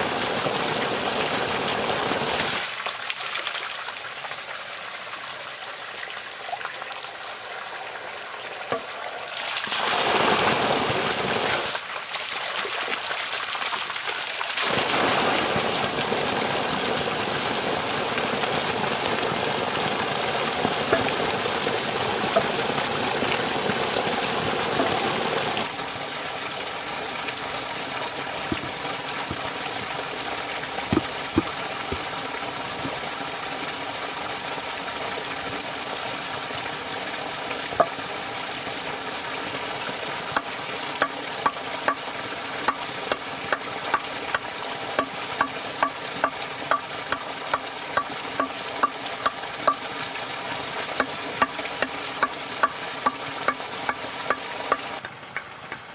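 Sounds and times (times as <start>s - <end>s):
water pouring into wooden trough: 8.6s - 36.0s, 39.9s - 55.9s
hatchet tapping into log: 30.9s - 32.0s.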